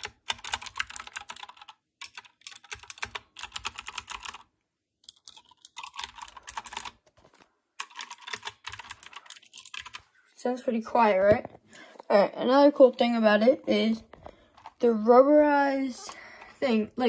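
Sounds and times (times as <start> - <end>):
fast typing key clicks: 0.0 - 4.4, 5.1 - 7.0, 7.8 - 10.0.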